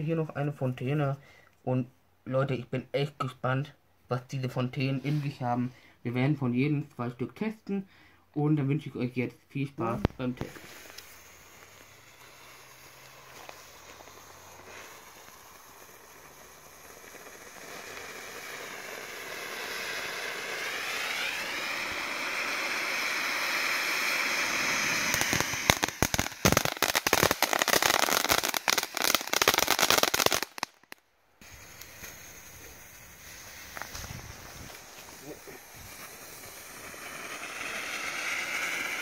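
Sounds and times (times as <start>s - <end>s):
dense crackling pops: 9.8s - 39.0s
firework fountain hissing: 9.8s - 39.0s.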